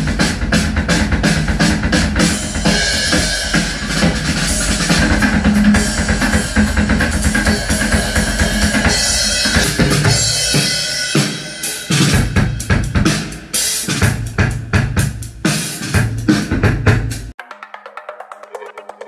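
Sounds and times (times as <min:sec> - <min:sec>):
drum beat music: 0:00.0 - 0:19.0.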